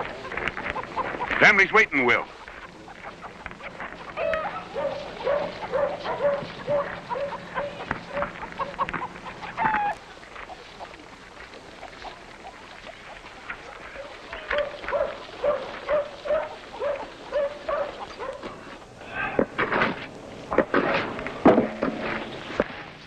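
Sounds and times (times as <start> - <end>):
dog barking: 4.2 - 8.3, 14.5 - 18.5.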